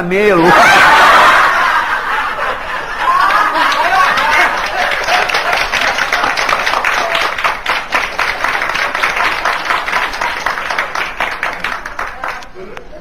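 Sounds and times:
audience clapping: 2.8 - 12.8.

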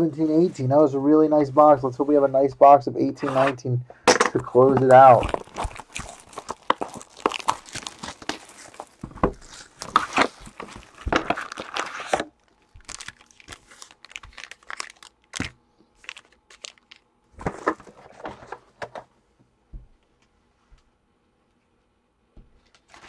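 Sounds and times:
plastic wrap tearing and crinkling: 4.6 - 18.0.

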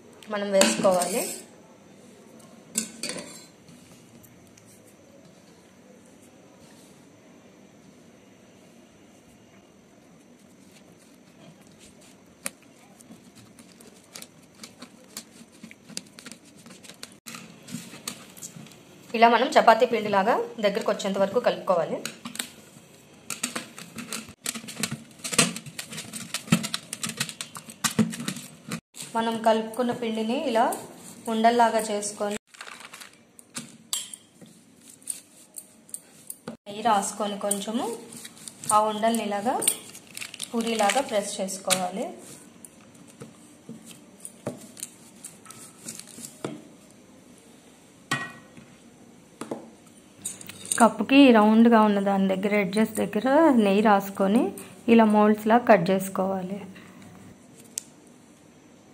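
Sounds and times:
hands kneading dough: 10.0 - 18.6.

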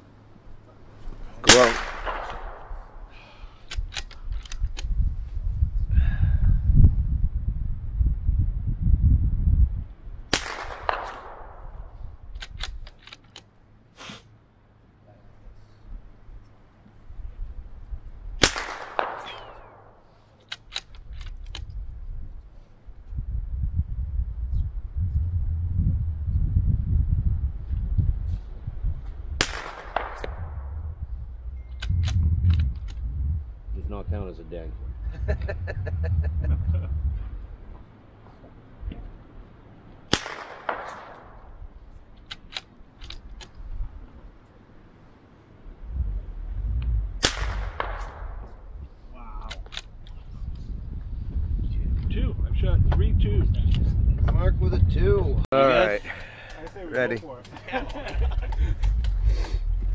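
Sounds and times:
rifle shot: 1.4 - 3.1, 10.3 - 12.0, 18.4 - 20.0, 29.4 - 31.0, 40.1 - 41.6, 47.2 - 48.7
sharp crack: 1.4 - 4.9, 10.3 - 14.2, 18.4 - 21.7, 29.4 - 31.1, 40.1 - 43.6, 45.9 - 50.2
sharp clicks: 3.6 - 4.9, 31.7 - 33.1, 42.2 - 43.6.

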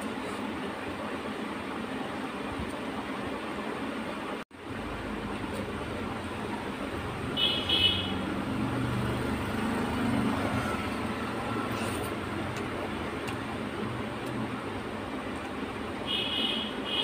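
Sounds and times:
road traffic noise: 0.0 - 17.0
vehicle horn tooting: 7.4 - 8.2, 16.1 - 17.0.

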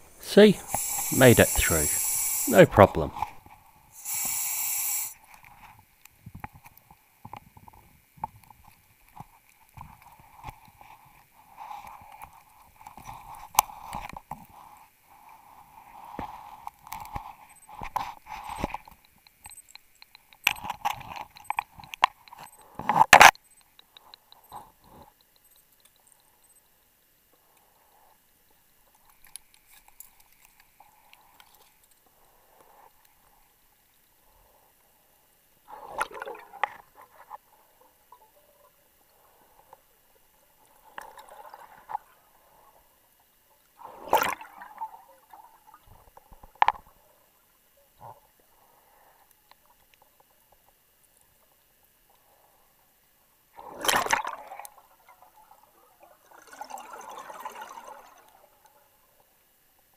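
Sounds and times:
short hiss: 0.0 - 3.4, 4.0 - 5.2.

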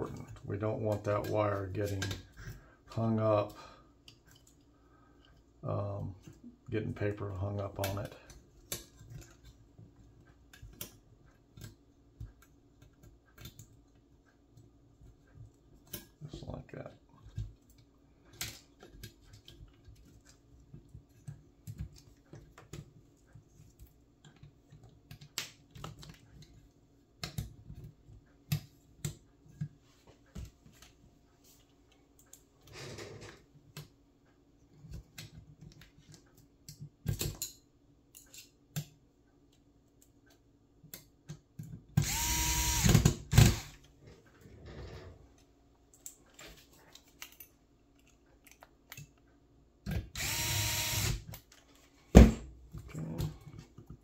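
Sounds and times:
wires and plastic parts rustling: 0.0 - 34.0, 43.8 - 49.9
electric screwdriver whining: 42.0 - 43.8, 50.2 - 51.3.

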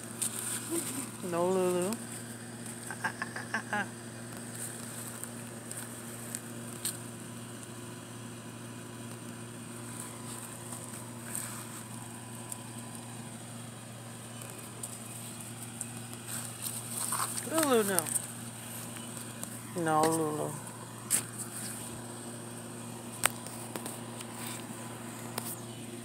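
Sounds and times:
low mechanical hum: 0.0 - 26.0
faint rustles and ticks: 4.3 - 7.7, 9.0 - 22.3, 23.1 - 25.8.

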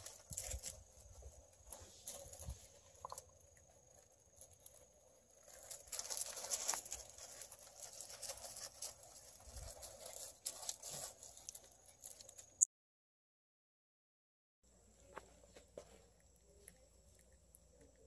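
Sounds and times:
puppies' paws scrabbling on gravel: 0.0 - 12.6.

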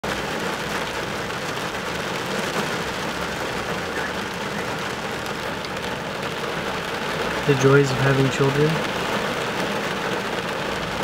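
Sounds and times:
rain on car windshield: 0.0 - 11.0.

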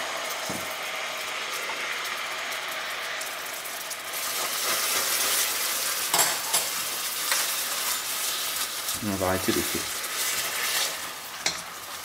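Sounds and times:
caramel bubbling and sizzling: 0.0 - 12.0
spatula stirring in a pan: 3.8 - 12.0.

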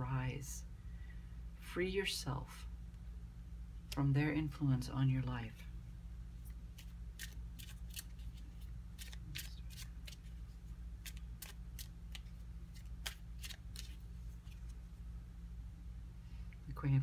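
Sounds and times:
low steady hum: 0.0 - 17.0
cards clicking and snapping: 6.7 - 10.3, 11.0 - 14.8.

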